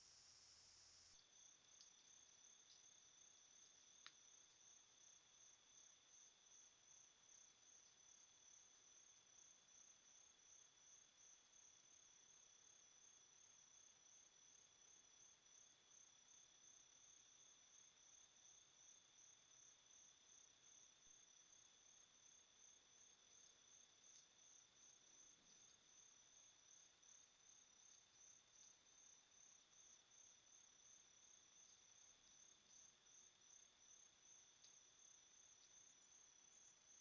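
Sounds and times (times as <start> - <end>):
low hiss: 0.0 - 3.0
faint crickets chirping: 0.0 - 37.0.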